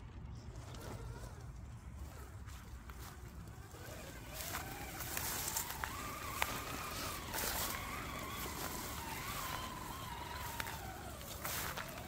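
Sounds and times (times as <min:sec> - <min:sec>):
electric motor and gearbox whining: 0:00.0 - 0:12.0
rustling hiss: 0:03.8 - 0:12.0.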